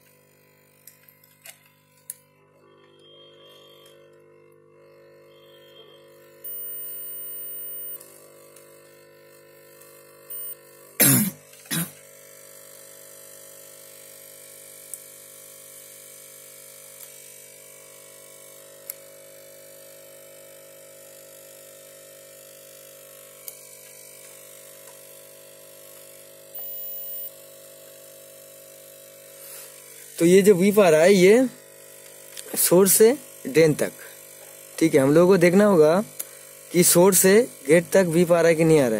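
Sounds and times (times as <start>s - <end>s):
multimeter beeping: 2.6s - 8.1s, 10.3s - 10.7s, 26.6s - 27.4s
steady low hum: 3.0s - 8.0s, 10.3s - 11.9s, 26.6s - 27.3s.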